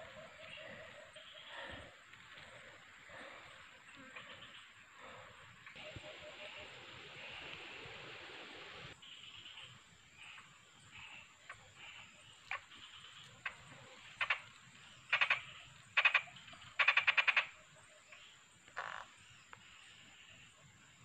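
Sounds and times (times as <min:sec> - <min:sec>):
frog clicking calls: 0:09.4 - 0:13.6, 0:14.2 - 0:19.1.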